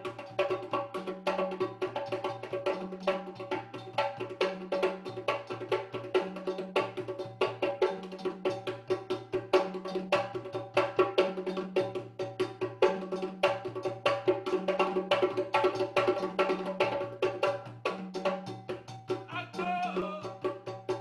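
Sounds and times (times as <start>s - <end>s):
sharp clicking percussion: 0.0s - 21.0s.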